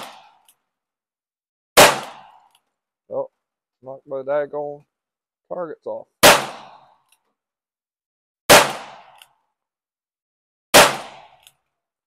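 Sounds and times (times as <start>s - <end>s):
gunshots: 0.0s - 0.4s, 1.8s - 2.5s, 6.2s - 6.9s, 8.5s - 9.2s, 10.7s - 11.4s.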